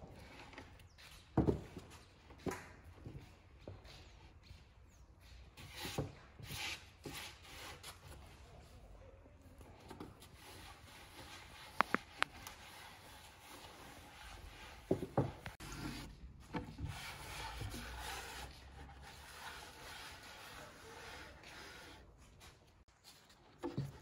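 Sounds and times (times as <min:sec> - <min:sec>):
cloth wiping wooden board: 0:16.9 - 0:22.1.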